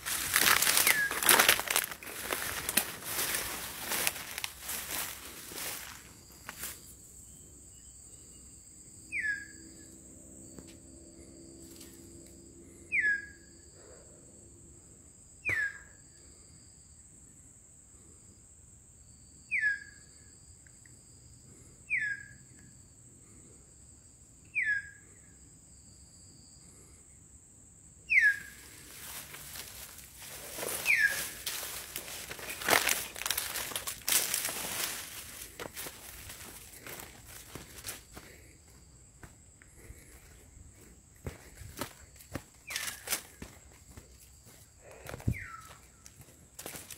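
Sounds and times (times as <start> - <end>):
high insect drone: 0.0 - 46.9
bird whistling: 9.1 - 9.5, 28.1 - 28.5, 30.8 - 31.3
rustling: 28.9 - 38.0.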